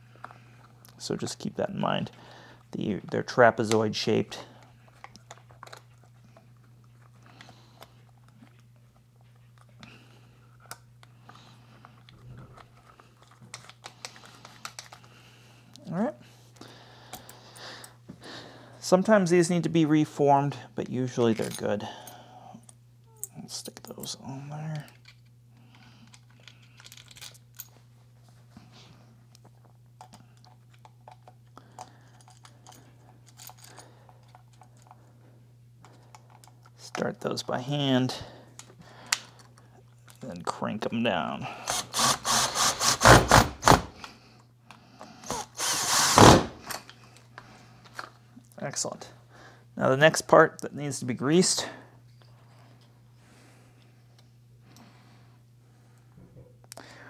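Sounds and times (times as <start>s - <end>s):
steady low hum: 0.0s - 57.0s
small parts clicking and knocking: 11.9s - 15.1s, 24.8s - 27.8s, 29.4s - 35.0s, 35.8s - 37.0s.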